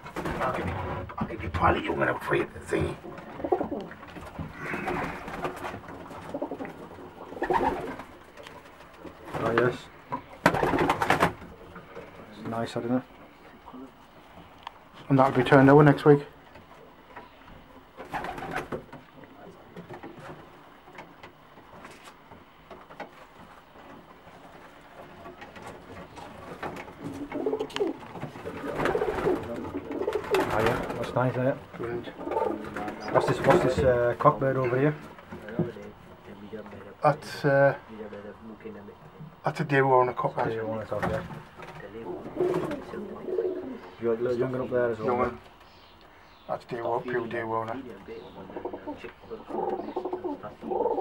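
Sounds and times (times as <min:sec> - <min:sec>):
pigeons cooing: 0:02.3 - 0:12.3, 0:24.9 - 0:33.9, 0:41.8 - 0:46.0, 0:47.9 - 0:51.0.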